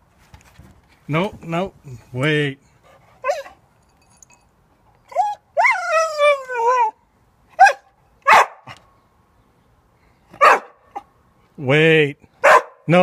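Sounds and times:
dog whining: 5.1 - 7.0
dog barking: 7.6 - 8.8, 10.4 - 11.0, 12.4 - 12.9.

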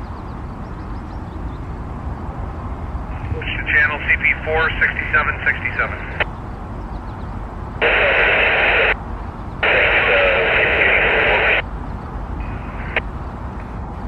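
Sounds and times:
radio scanner static hiss: 3.1 - 6.3, 7.8 - 9.0, 9.6 - 11.6, 12.4 - 13.0.

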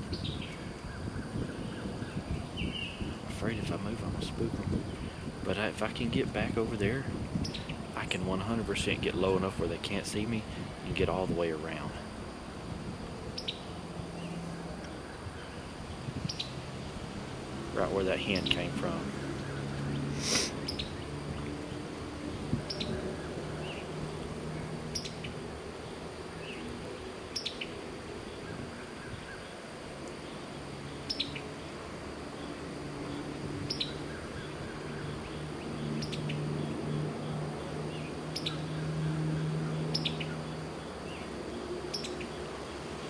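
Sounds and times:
low steady hum: 0.0 - 43.0
bird calling: 13.3 - 16.6, 17.8 - 21.8, 22.5 - 29.6, 32.4 - 42.5.

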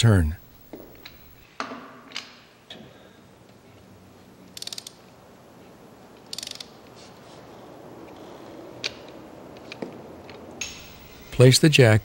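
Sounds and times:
ratchet clicking: 4.5 - 5.0, 6.3 - 6.7.

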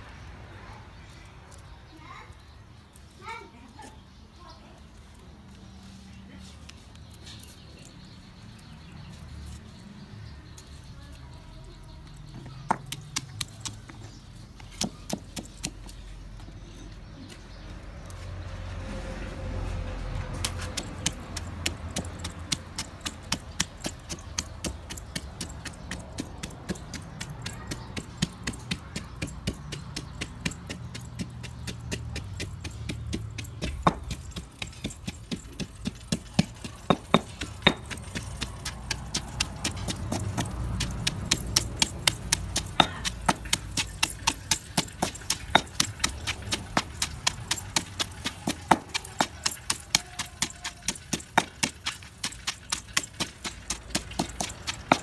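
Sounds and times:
stone pestle pounding in mortar: 20.4 - 55.0.

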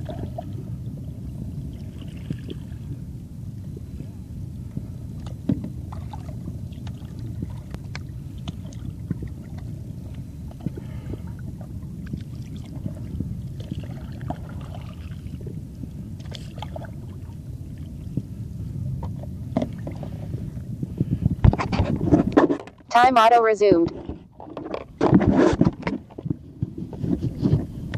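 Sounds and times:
muffled low rumble: 0.0 - 27.9
soft water splashes: 5.2 - 18.4.

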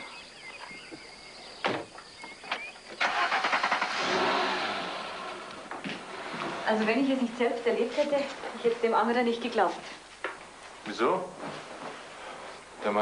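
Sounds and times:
car engine starting and running: 2.6 - 6.8.

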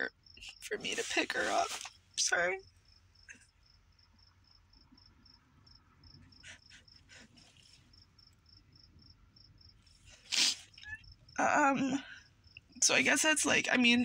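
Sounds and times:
crickets chirping: 0.0 - 14.0
person sniffling while crying: 6.4 - 7.6, 10.2 - 10.8.

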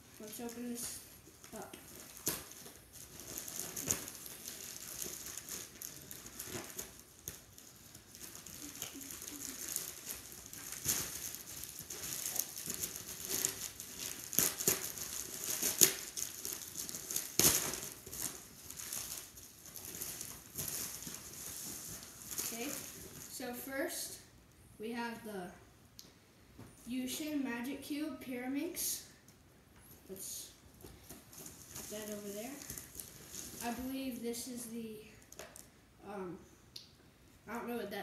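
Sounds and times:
plastic bag rustling and crinkling: 0.0 - 23.4, 30.2 - 35.7.

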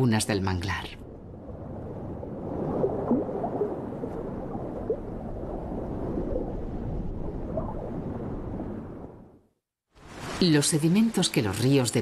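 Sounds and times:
underwater rush of water: 1.3 - 8.9, 10.0 - 11.4.

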